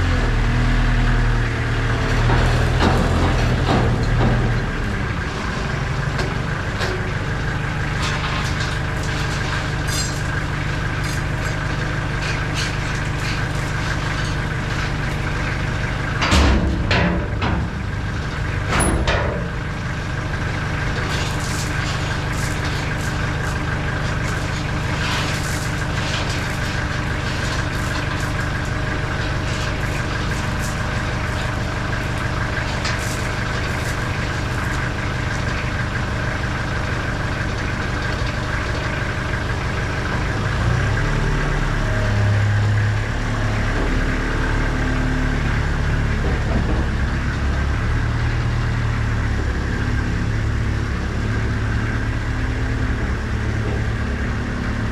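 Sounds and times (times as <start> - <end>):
forklift engine idling: 0.0 - 54.9
gravel clicks falling: 20.6 - 39.0.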